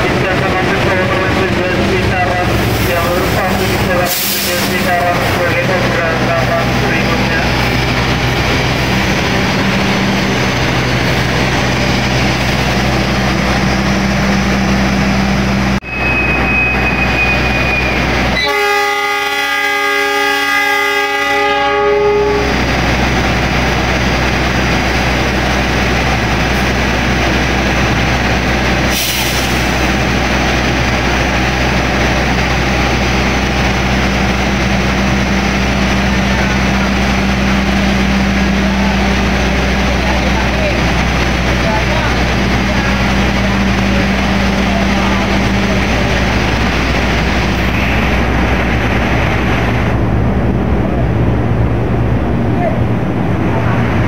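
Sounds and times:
diesel engines droning: 0.0 - 54.0
train horn blast: 16.8 - 22.6.

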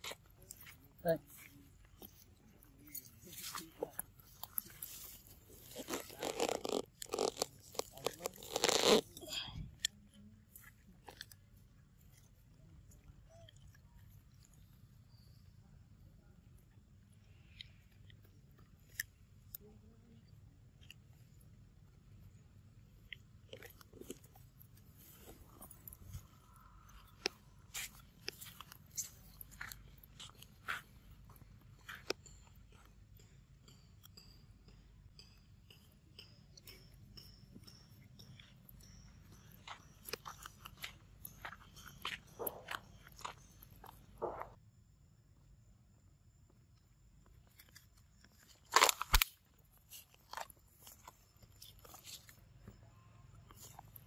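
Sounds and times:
monkey chewing peanuts: 0.0 - 15.5, 16.7 - 19.6, 20.2 - 44.6, 47.3 - 52.8, 53.4 - 54.0
crunch of dry leaves: 3.0 - 9.3, 38.8 - 44.5, 47.5 - 52.8.

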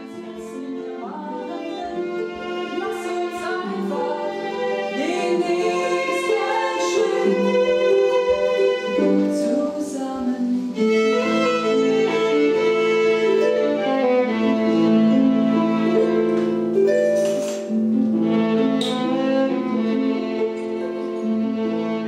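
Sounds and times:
violin melody: 0.0 - 22.0
plucked harp notes: 14.8 - 21.6.

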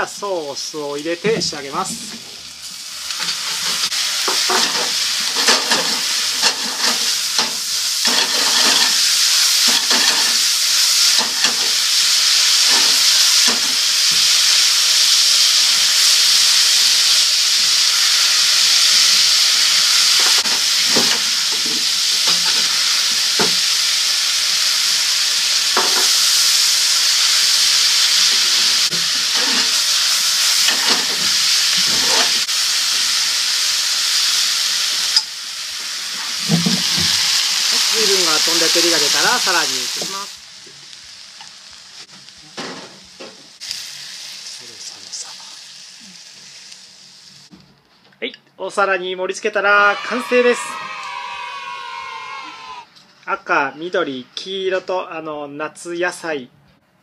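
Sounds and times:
noodles sizzling in a frying pan: 1.0 - 47.6, 49.9 - 52.8
chopsticks scraping a pan: 3.1 - 10.4, 28.9 - 29.9, 30.6 - 32.5.

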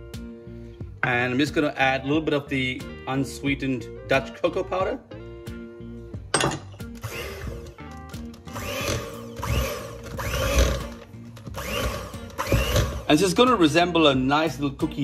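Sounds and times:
light background music: 0.0 - 15.0
electric hand mixer running: 7.0 - 13.2.

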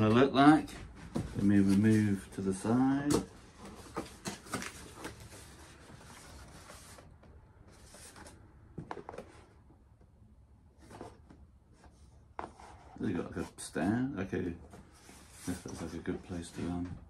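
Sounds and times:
cardboard flaps rustling: 0.6 - 9.5.

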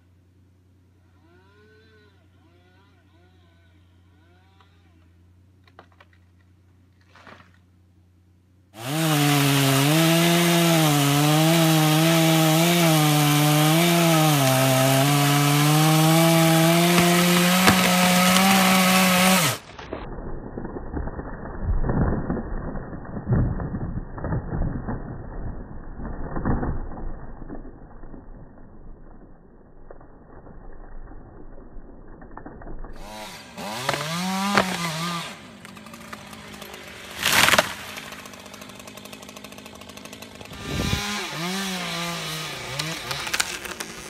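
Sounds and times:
chainsaw cutting wood: 1.0 - 3.4, 8.8 - 20.0, 32.2 - 44.0.

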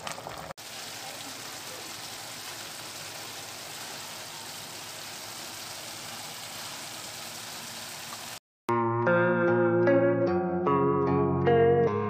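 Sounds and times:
meat sizzling in a wok: 0.0 - 8.4.

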